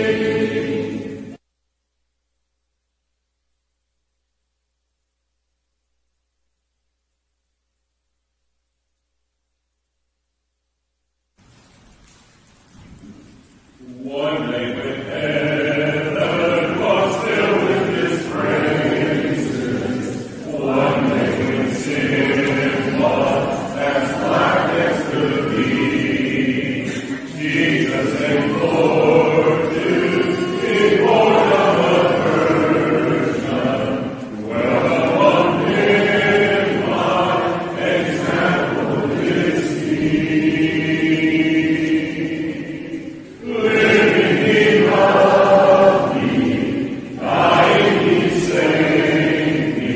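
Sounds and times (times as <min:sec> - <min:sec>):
a cappella group singing a hymn: 0:00.0 - 0:01.4, 0:13.8 - 0:49.9.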